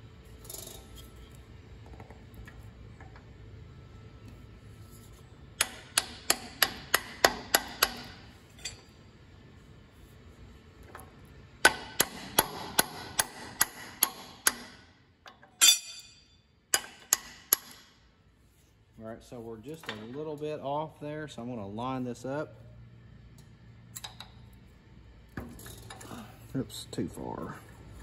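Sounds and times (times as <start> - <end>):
hammer tapping on steel: 5.6 - 8.1.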